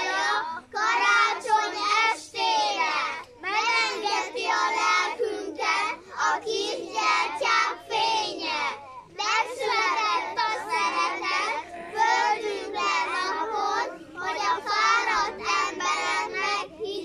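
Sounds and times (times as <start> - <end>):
children singing: 0.0 - 17.0.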